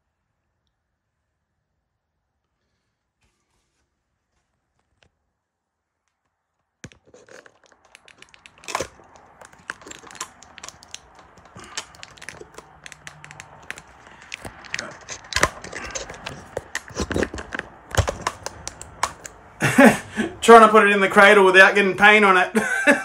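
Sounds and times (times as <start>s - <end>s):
crinkling and rustling: 6.0s - 19.5s
handling clicks and knocks: 6.8s - 19.5s.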